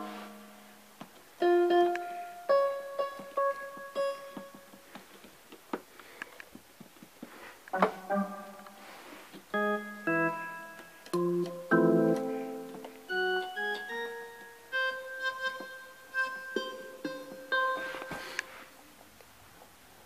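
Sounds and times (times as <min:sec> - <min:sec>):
piano notes and chords: 0:00.0 - 0:04.9, 0:07.7 - 0:18.7.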